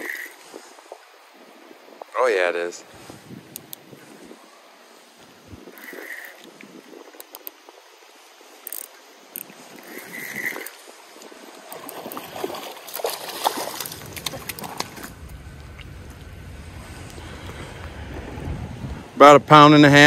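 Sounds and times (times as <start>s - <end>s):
fishing reel clicking: 0.0s - 0.4s, 3.5s - 3.8s, 5.7s - 7.6s, 8.6s - 10.8s
wind buffeting microphone: 0.0s - 20.0s.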